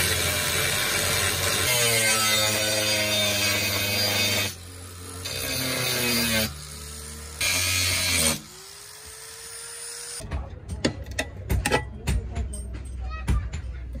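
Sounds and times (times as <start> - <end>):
angle grinder cutting metal: 0.0 - 10.2
metal knocks and clanks: 10.2 - 14.0.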